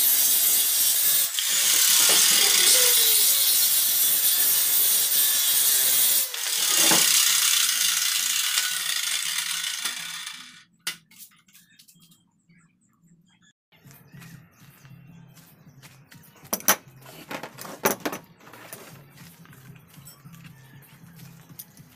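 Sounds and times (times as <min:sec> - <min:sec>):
circular saw cutting wood: 0:00.0 - 0:10.7.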